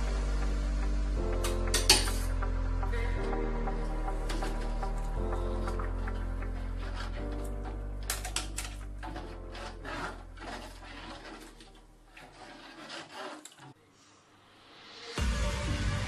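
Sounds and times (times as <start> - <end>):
background music with held chords: 0.0 - 10.8, 14.7 - 16.0
spoon scraping in a metal pot: 1.4 - 2.4, 4.1 - 13.8.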